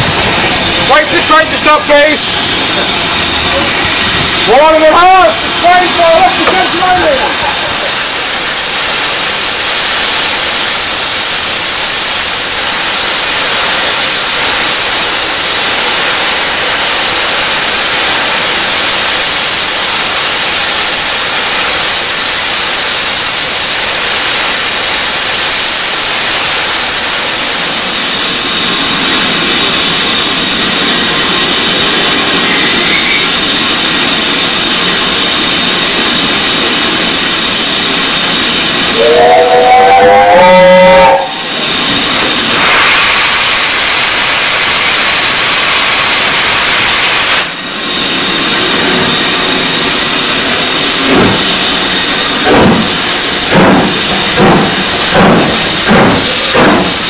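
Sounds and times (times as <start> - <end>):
steam locomotive hissing steam: 0.0 - 57.0.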